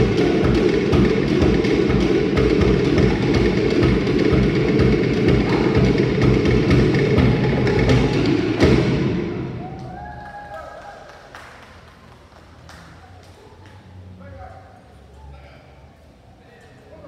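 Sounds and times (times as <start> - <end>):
deep bass drum: 0.0 - 9.8
wooden slit drums beating: 0.0 - 10.0.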